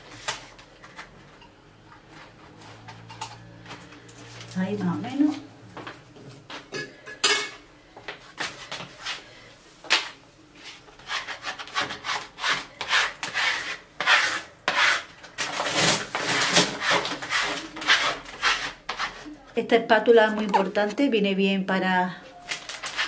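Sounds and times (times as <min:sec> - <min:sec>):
squeegee rubbing wallpaper: 0:10.6 - 0:19.3.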